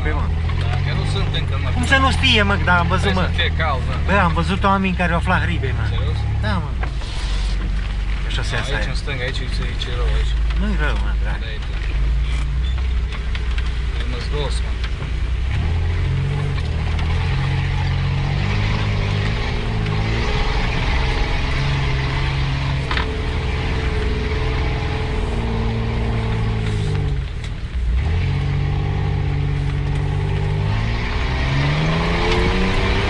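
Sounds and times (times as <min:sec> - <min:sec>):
engine revving: 0:00.0 - 0:13.2, 0:14.0 - 0:33.0.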